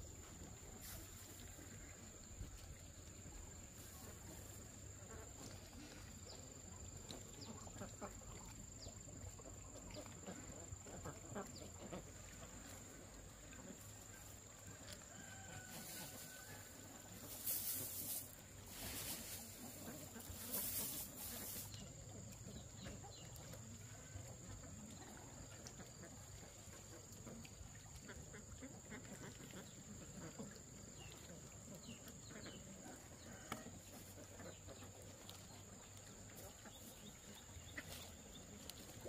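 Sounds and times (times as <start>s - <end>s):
rice husks rustling: 14.8s - 21.8s.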